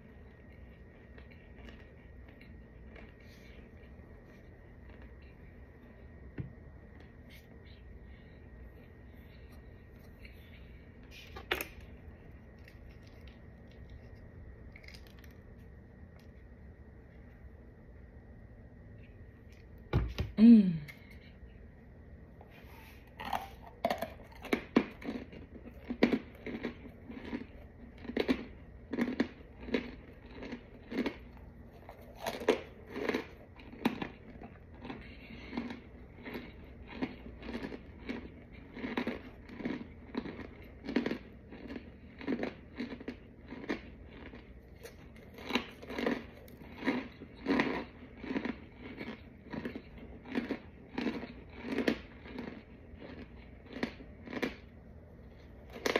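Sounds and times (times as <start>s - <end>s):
person crunching chalky chunks: 7.0s - 15.7s, 22.5s - 54.7s.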